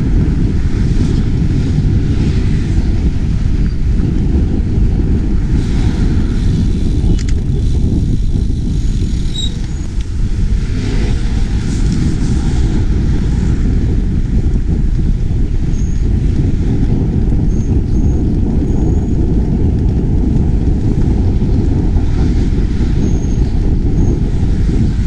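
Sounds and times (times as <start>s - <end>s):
passing cars: 0.0s - 25.0s
wind rumbling on microphone: 0.0s - 25.0s.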